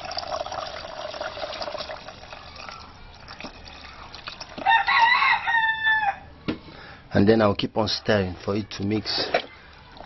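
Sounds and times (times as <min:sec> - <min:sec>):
water pouring into a bowl: 0:00.0 - 0:04.7.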